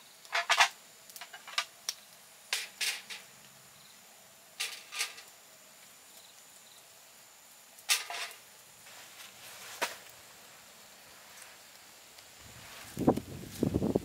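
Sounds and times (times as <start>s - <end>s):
dishes clattering on metal table: 7.9s - 8.4s.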